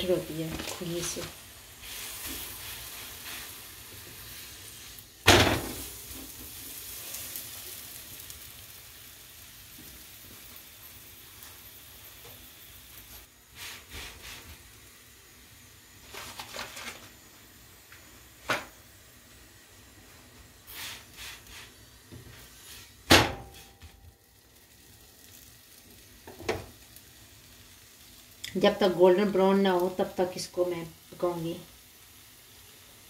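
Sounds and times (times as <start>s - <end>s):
flatbread sizzling in pan: 0.0s - 33.0s
sharp thump: 23.1s - 23.5s.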